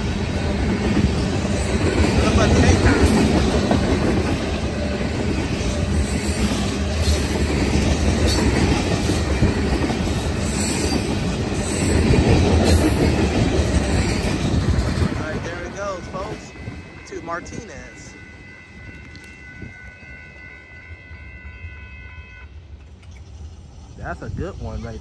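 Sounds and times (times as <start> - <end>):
wheels clacking over rail joints: 0.0 - 15.4
train wheels rumbling on rails: 0.0 - 21.8, 22.4 - 25.0.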